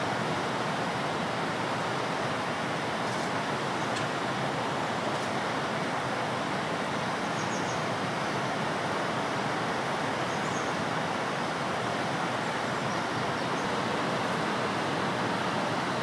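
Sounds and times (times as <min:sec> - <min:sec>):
small birds chirping: 0:10.3 - 0:10.8.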